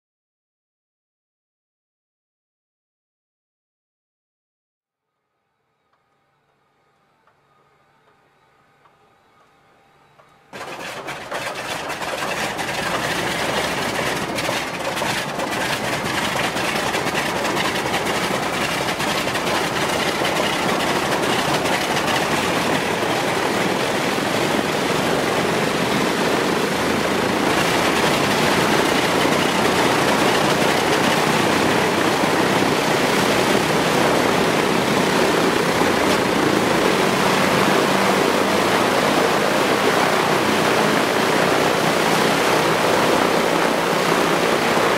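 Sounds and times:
aircraft piston engines starting: 10.5s - 44.9s.

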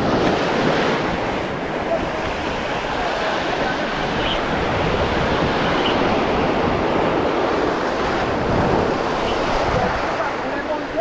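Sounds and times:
surf breaking over rocks: 0.0s - 11.0s
wind buffeting microphone: 0.0s - 11.0s.

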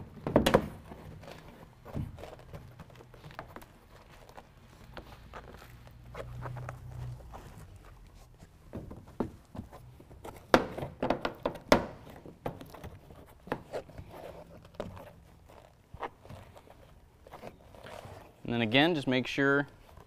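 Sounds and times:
rustling: 0.6s - 10.5s, 12.0s - 20.0s
hands knocking on plastic panel: 10.5s - 12.0s.

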